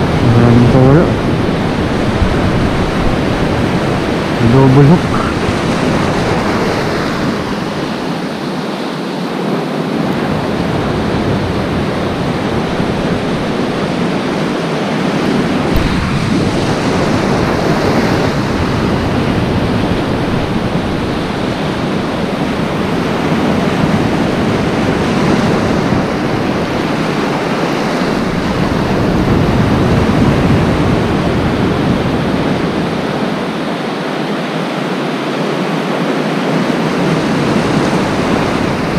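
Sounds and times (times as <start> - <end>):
surf breaking over reef: 0.0 - 38.9
wind buffeting microphone: 0.0 - 38.9.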